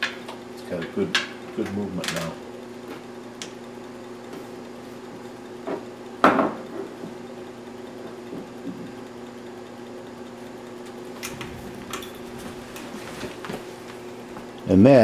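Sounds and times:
steady low hum: 0.0 - 15.0
knock on wooden tabletop: 5.7 - 6.6.

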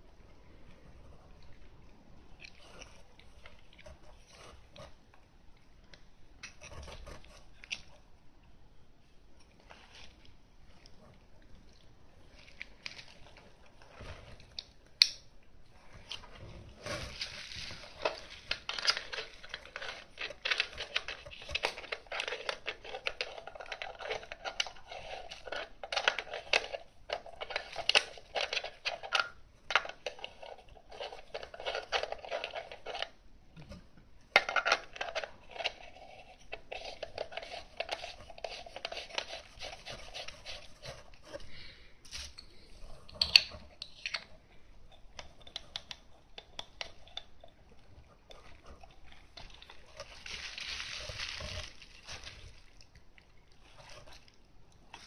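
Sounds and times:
bubble wrap crinkling: 16.9 - 29.2, 49.3 - 55.0.

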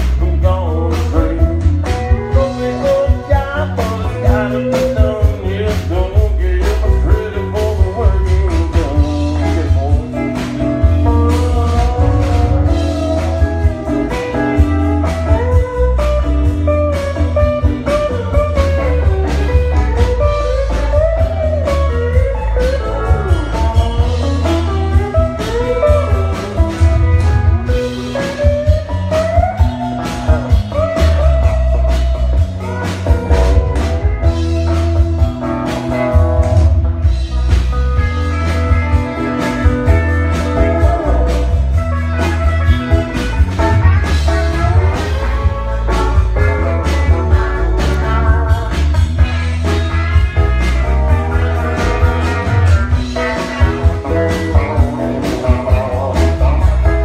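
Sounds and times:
bass guitar: 0.0 - 57.0
electric guitar lead: 0.0 - 57.0
steady drum beat: 0.0 - 57.0.

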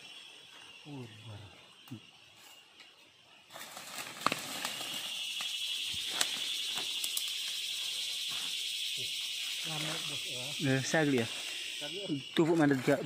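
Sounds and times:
high-pitched insect drone: 0.0 - 13.0
twigs and leaves snapping: 2.8 - 7.6.

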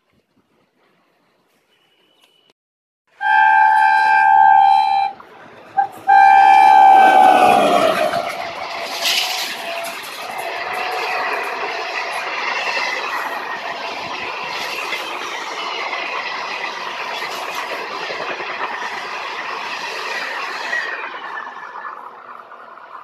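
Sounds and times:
high wheel squeal: 3.2 - 22.6
train wheels clattering over rail joints: 5.2 - 23.0.

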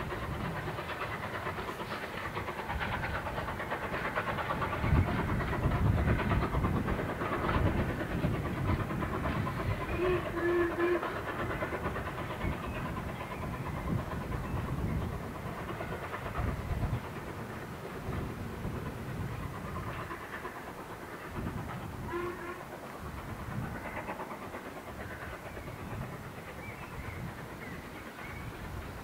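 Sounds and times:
steam engine chuffing: 0.0 - 29.0
low train hoot: 9.7 - 11.3, 22.0 - 22.8.

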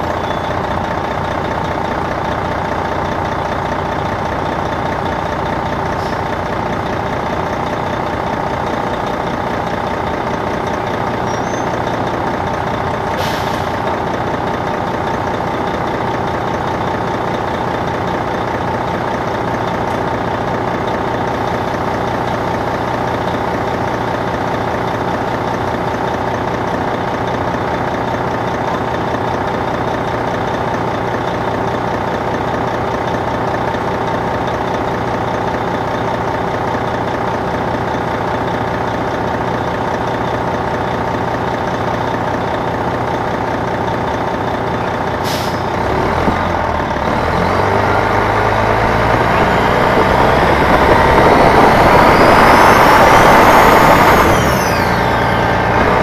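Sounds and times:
bus diesel engine running: 0.0 - 56.0
short hiss of air: 13.2 - 13.8, 45.2 - 45.8.

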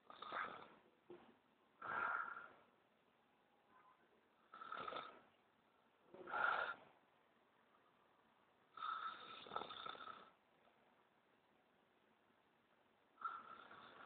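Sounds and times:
man snoring: 4.5 - 5.2, 8.8 - 10.4, 13.2 - 14.0.

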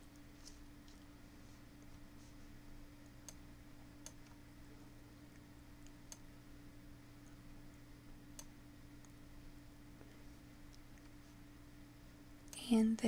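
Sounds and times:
low electrical hum: 0.0 - 13.0
computer mouse clicks: 3.2 - 3.4, 5.4 - 6.3.

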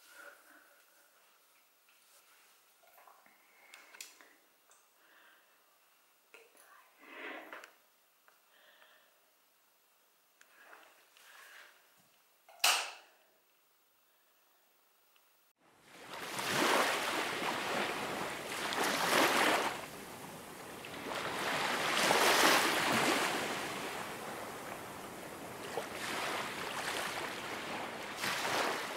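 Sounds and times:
ocean waves rolling in: 15.6 - 28.9.

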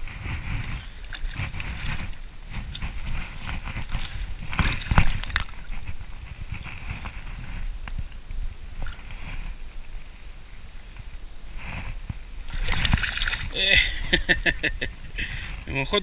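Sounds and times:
fish splashing in water: 0.3 - 7.4, 12.4 - 13.7.

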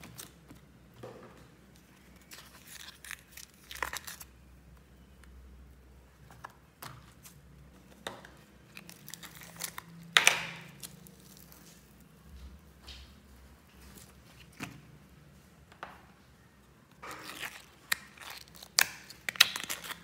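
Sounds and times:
slime crackling and popping: 8.7 - 12.0, 17.0 - 20.0.

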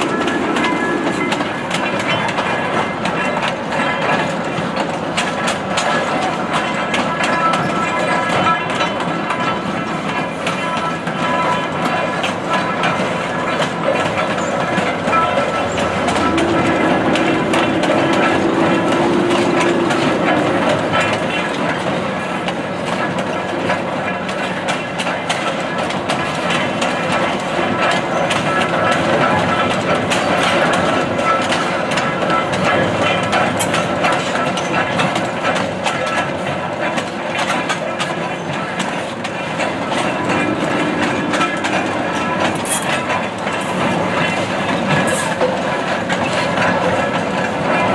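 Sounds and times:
steam train rumbling past: 0.0 - 47.9
wheels clicking over rail joints: 0.0 - 47.9
steady low tone: 15.0 - 21.5, 39.6 - 43.6.

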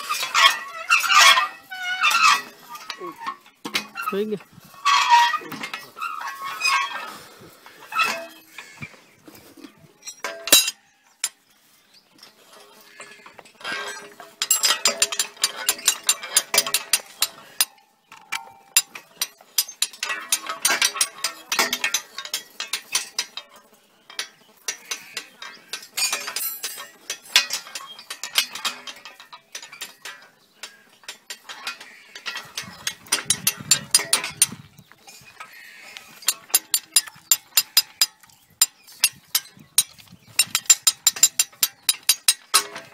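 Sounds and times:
winch pawl clicking: 12.9 - 23.5, 24.1 - 42.9.

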